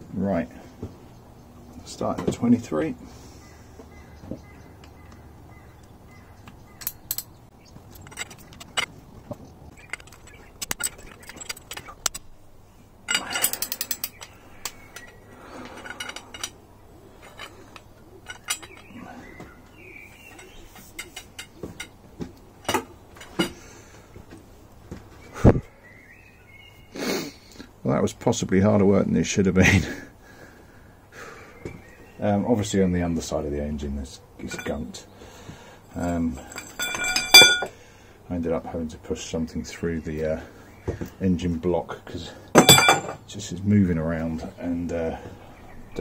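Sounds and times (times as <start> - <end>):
hand tools clinking on metal: 6.5 - 8.9, 9.8 - 12.3, 13.1 - 22.0, 22.6 - 23.6, 34.4 - 35.0, 35.9 - 37.8, 42.5 - 43.3.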